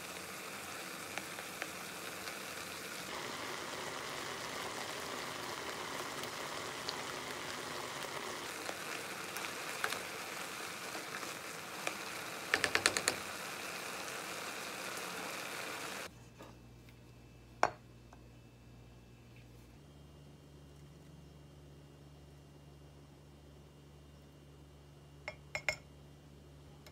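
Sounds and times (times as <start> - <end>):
apples sizzling in a saucepan: 0.0 - 16.1.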